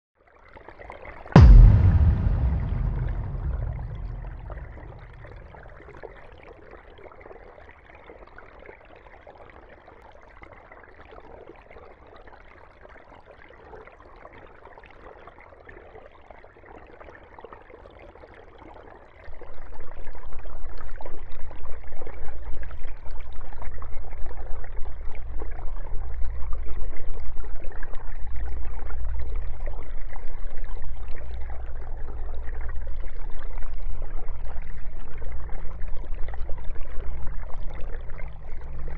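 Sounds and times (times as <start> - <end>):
loud low hum: 1.4 - 5.8.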